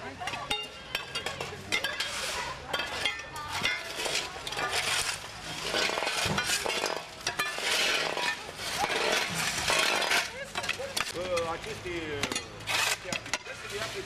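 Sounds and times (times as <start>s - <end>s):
metal shovels scraping ice: 0.3s - 14.0s.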